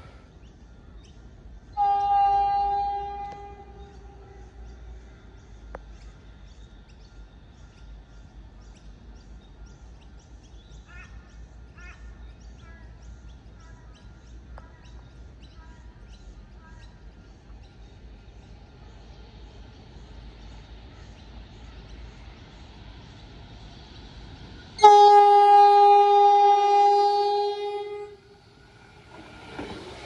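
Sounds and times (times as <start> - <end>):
train horn chord: 1.8 - 4.8, 24.8 - 28.4.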